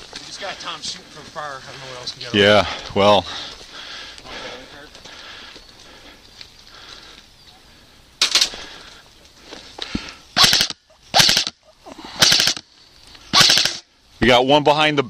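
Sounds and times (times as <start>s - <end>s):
airsoft rifle rapid-fire bursts: 10.4s - 11.6s, 12.2s - 12.6s, 13.3s - 13.8s.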